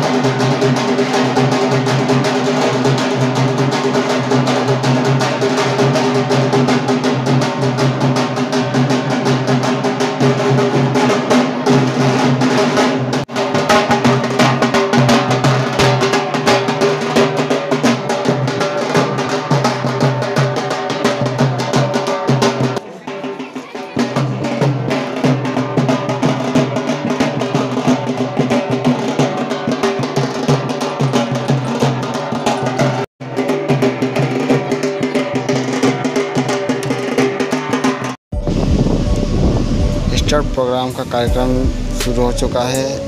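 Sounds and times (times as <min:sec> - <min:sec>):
fast drumming on large drum: 0:00.0 - 0:42.7
band sustained tones: 0:38.3 - 0:43.0.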